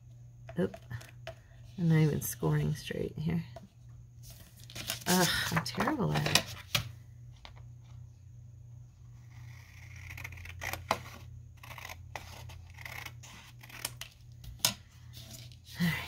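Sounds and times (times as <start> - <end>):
steady low hum: 0.0 - 16.0
paper rustling: 4.2 - 6.8.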